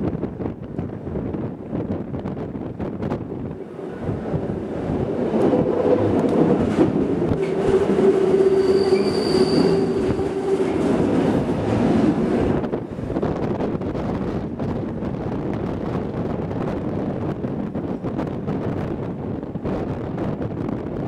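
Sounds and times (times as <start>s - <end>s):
train wheels rumbling on rails: 0.0s - 21.0s
high wheel squeal: 7.4s - 10.7s.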